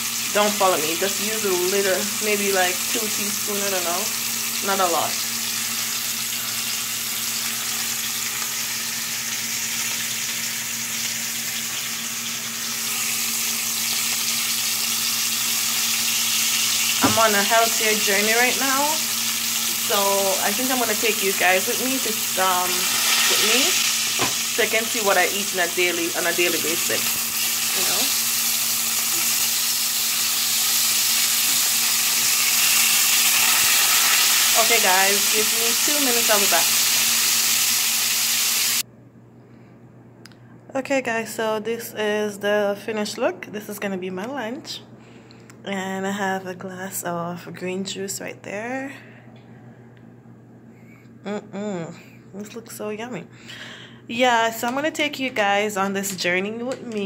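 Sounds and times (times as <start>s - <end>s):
meat sizzling in a pan: 0.0s - 38.8s.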